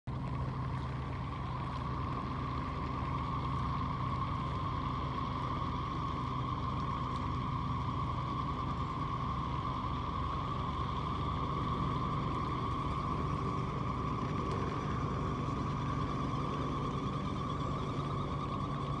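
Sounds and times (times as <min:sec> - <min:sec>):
low hum: 0:00.0 - 0:19.0
steady motor drone: 0:00.1 - 0:19.0.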